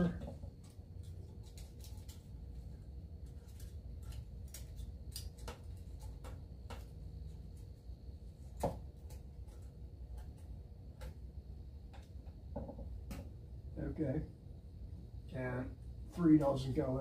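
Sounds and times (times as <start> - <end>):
low steady rumble: 5.9 - 17.0.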